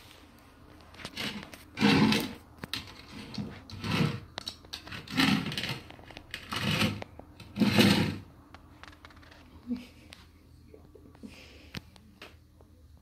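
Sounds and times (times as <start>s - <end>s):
basket scraping on tiled floor: 0.9s - 8.3s.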